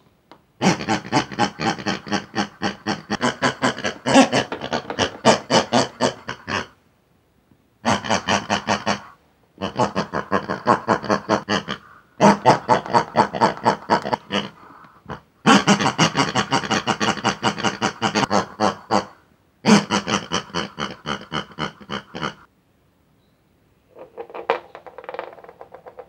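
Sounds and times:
pig-like gibberish chatter: 0.6s - 6.8s, 7.8s - 22.5s.

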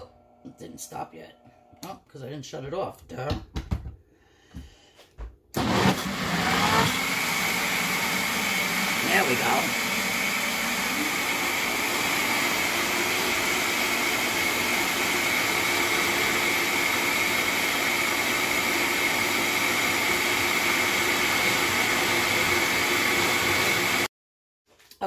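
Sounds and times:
blender motor whirring: 5.6s - 24.1s.

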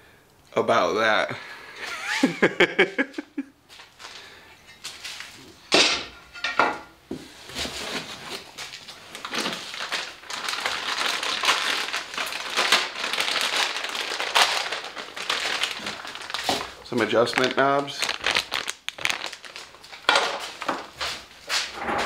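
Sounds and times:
plastic bag crinkling: 8.5s - 21.3s
scrapes: 21.0s - 22.0s.

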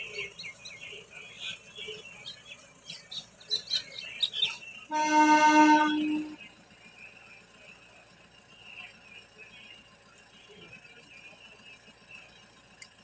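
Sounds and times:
small birds chirping: 0.0s - 13.0s
steady horn blast: 4.9s - 6.4s.

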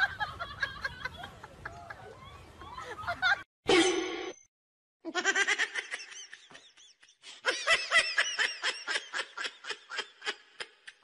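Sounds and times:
person laughing: 5.1s - 11.0s.

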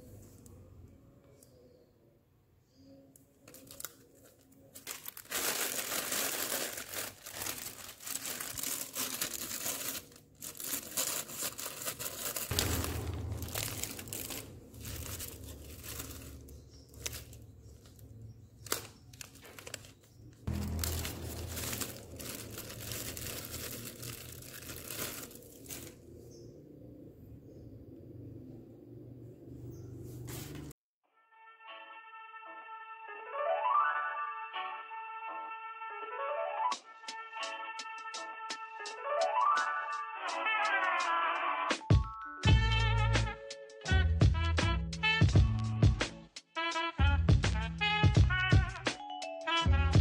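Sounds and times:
plastic bag crinkling: 3.4s - 26.1s.

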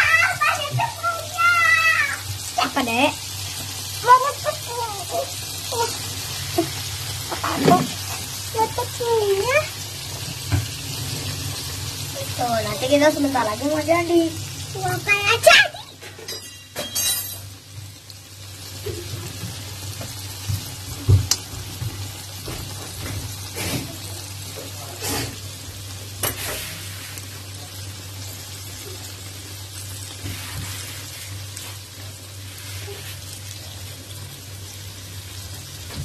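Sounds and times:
chicken sizzling in oil: 0.0s - 16.8s, 17.4s - 36.0s.

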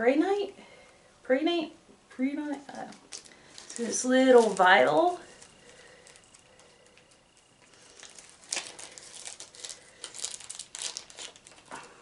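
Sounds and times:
tissue paper crinkling: 3.0s - 11.8s.

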